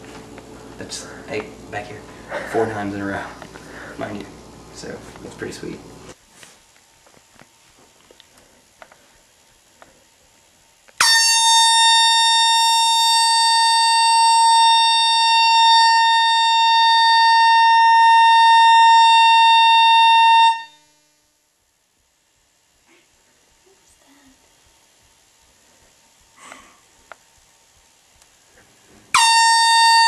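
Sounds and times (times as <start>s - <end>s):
loud steady horn: 11.0s - 20.8s, 29.1s - 30.0s.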